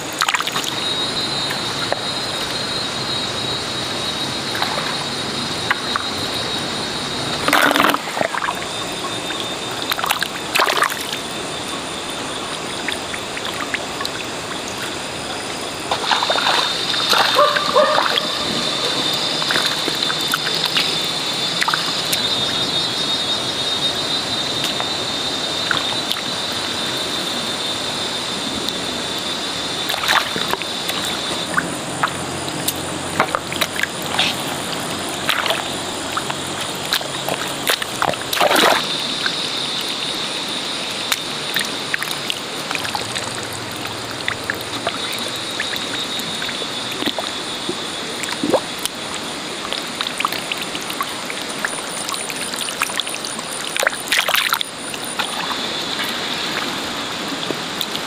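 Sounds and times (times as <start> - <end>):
splats of mud and water: 0.0 - 3.2, 4.4 - 11.8, 12.6 - 22.7, 29.8 - 40.1, 40.9 - 58.0
steady wet hiss: 0.0 - 58.0
hands squelching in wet mud: 7.4 - 11.3, 15.9 - 21.0, 29.9 - 39.0.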